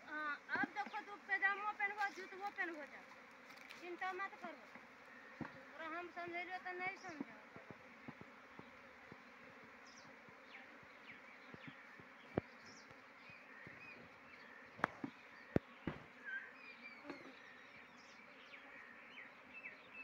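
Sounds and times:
honeybees buzzing: 0.0s - 20.0s
sharp knocks on hive: 4.7s - 5.6s, 7.1s - 9.3s, 10.2s - 13.0s, 14.8s - 16.2s, 17.0s - 17.4s.

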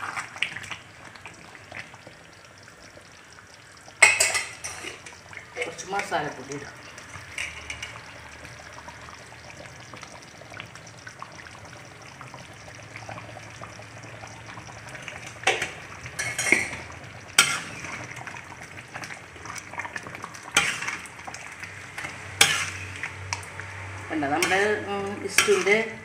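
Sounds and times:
stew bubbling in a metal pan: 0.0s - 26.0s
metal spatula clacking against pan: 22.4s - 22.8s, 25.3s - 25.8s.

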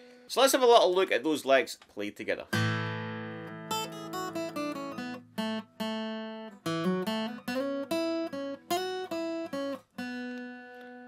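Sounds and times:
acoustic guitar licks: 2.5s - 11.0s.

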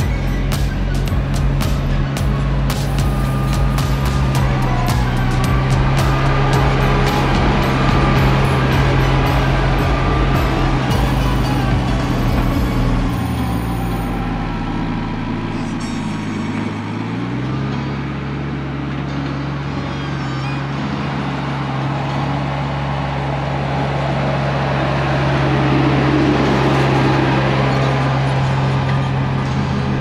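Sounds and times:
tractor diesel engine running: 0.0s - 30.0s.

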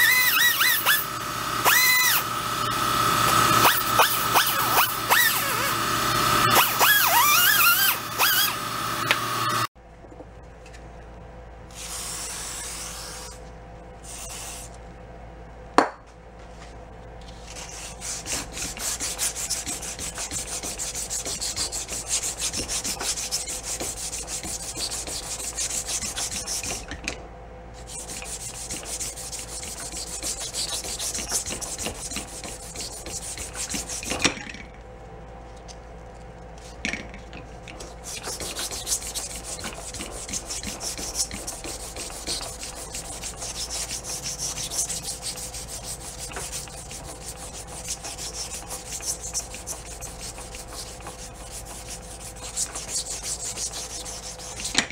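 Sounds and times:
die grinder whining on steel: 0.0s - 9.7s.

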